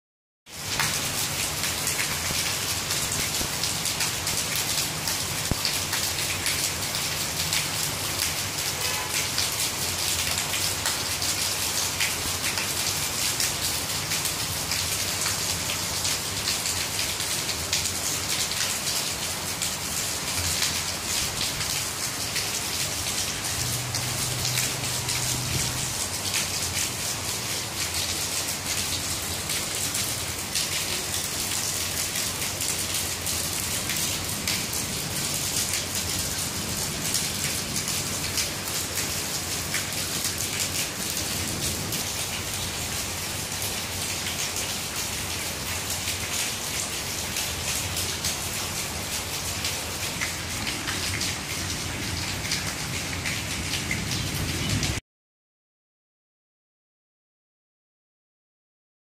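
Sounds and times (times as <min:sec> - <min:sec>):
rain falling on leaves and pavement: 0:00.5 - 0:55.0.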